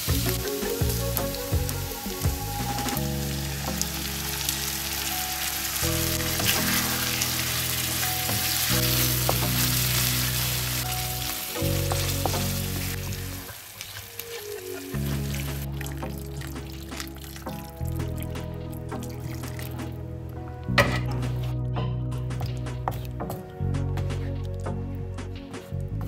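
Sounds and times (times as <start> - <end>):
meat sizzling in a frying pan: 0.0 - 17.7
sauce being poured: 15.2 - 20.0.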